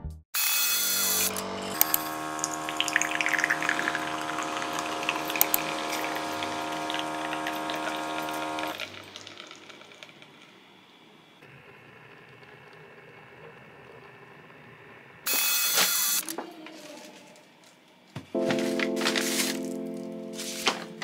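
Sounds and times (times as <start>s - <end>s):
espresso machine pump humming: 0.8s - 16.2s
coffee dripping: 1.6s - 10.6s.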